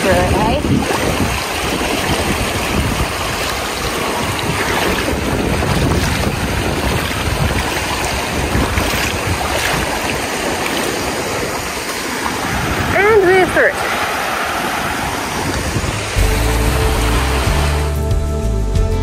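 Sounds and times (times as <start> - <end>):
wind buffeting microphone: 0.0 - 17.7
river rushing over stones: 0.0 - 18.0
splashing footsteps in water: 0.8 - 13.0.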